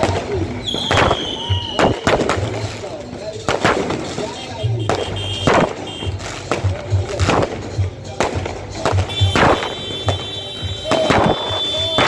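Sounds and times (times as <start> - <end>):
fireworks bangs: 0.0 - 12.0
music with pulsing bass beat: 0.0 - 12.0.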